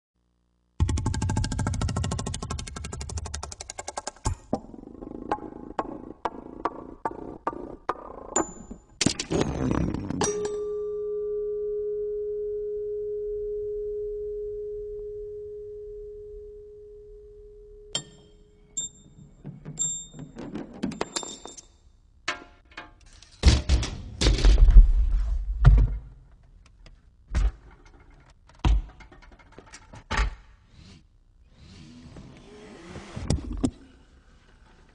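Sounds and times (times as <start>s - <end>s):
metal part ringing tone: 10.3s - 12.0s, 13.0s - 20.4s
metallic tinkles: 17.9s - 20.4s.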